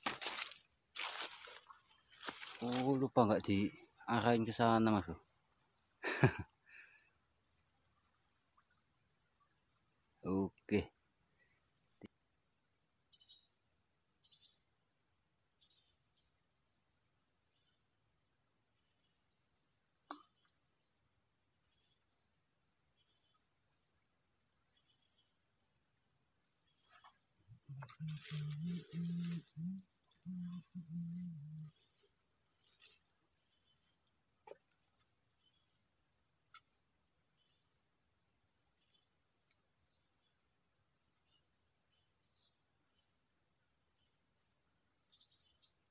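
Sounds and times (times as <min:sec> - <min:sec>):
high-pitched insect chorus: 0:00.0 - 0:45.9.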